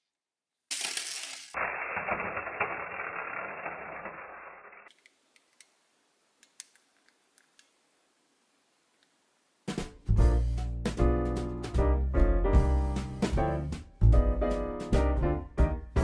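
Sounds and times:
toy car rolling through slime: 0:00.7 - 0:05.0
plastic clicks: 0:06.4 - 0:07.8.

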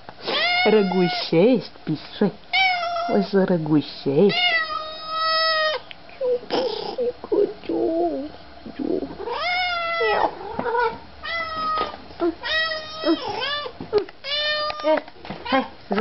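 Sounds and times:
cat meowing: 0:00.3 - 0:01.2, 0:02.5 - 0:03.2, 0:04.3 - 0:05.8, 0:09.2 - 0:14.9.

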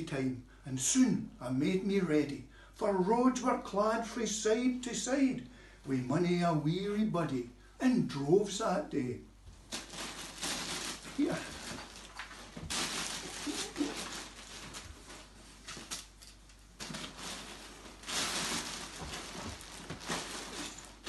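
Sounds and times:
plastic bag rustling: 0:09.6 - 0:21.0.

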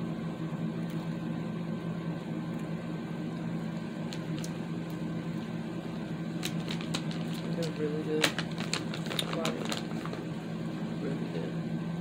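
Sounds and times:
appliance humming: 0:00.0 - 0:12.0
clicks and crackles: 0:03.3 - 0:05.5, 0:06.4 - 0:10.3.

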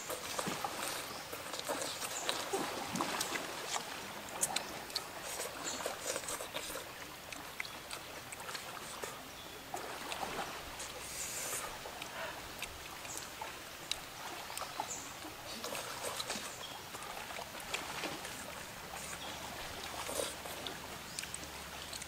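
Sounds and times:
person chewing and slurping: 0:04.4 - 0:06.9, 0:19.9 - 0:21.3.

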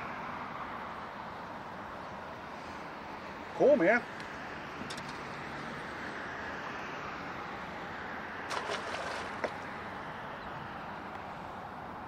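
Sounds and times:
wind: 0:00.0 - 0:12.0
fish splashing in water: 0:08.4 - 0:10.0
water rushing: 0:08.5 - 0:10.0.

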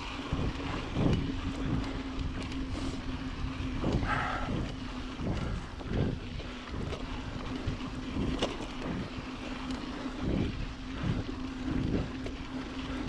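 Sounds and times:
bike rattling over bumps: 0:00.0 - 0:13.0
bike tyres on gravel: 0:00.0 - 0:13.0
steady hum: 0:00.0 - 0:13.0
wind buffeting microphone: 0:00.0 - 0:13.0.

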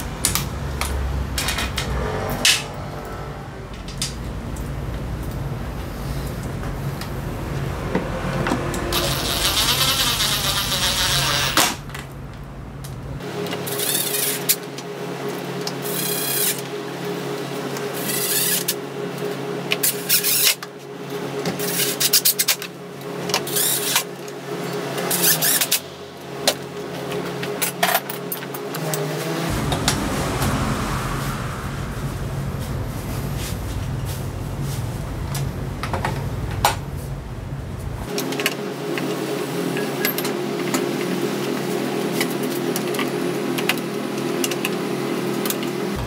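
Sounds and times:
steady mechanical hum: 0:00.0 - 0:02.0, 0:03.6 - 0:46.0
power tool whirring: 0:08.9 - 0:11.8.

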